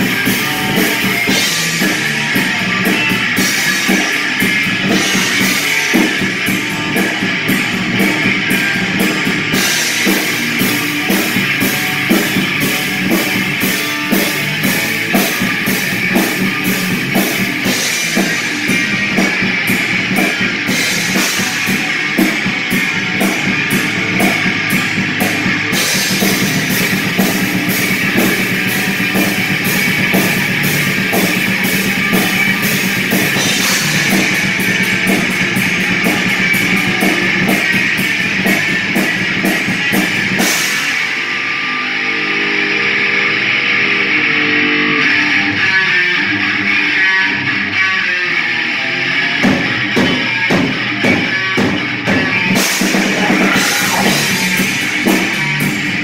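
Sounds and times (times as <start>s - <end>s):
drum kit with cymbals: 0.0s - 42.5s, 49.1s - 56.0s
electric guitar: 0.0s - 56.0s.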